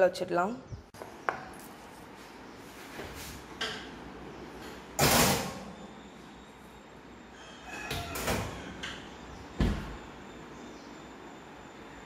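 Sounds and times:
oven humming: 2.5s - 12.0s.

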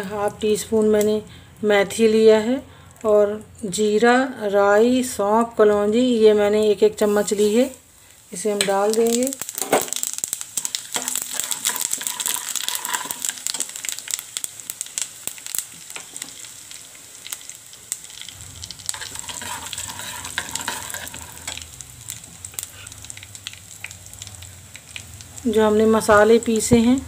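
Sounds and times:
spices sizzling in hot oil: 4.9s - 27.0s
low hum: 18.2s - 20.5s.

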